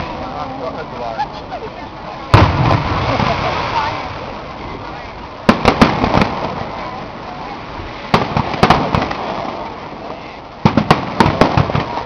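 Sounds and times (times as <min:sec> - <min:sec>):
firework shells bursting: 0:05.4 - 0:06.7.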